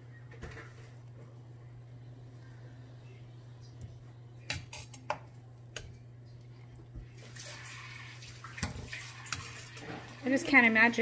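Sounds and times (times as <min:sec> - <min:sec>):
liquid dripping and splashing: 0:07.0 - 0:10.3.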